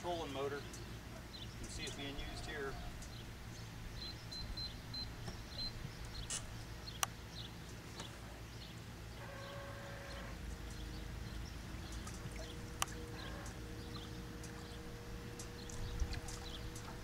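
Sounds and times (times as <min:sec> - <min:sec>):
wind rumbling on microphone: 0:13.8 - 0:17.0.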